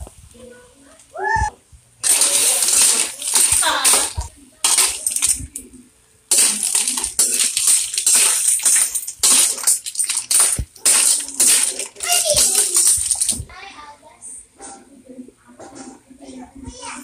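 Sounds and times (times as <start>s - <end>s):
clams clattering in metal wok: 2.0s - 5.4s, 6.3s - 13.3s
metal ladle stirring: 6.3s - 13.4s.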